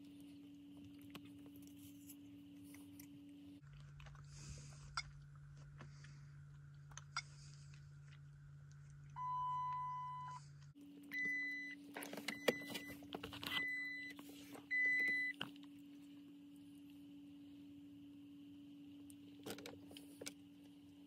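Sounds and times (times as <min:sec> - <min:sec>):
steady electrical hum: 0:00.0 - 0:21.0
dashboard warning chimes: 0:09.2 - 0:10.4.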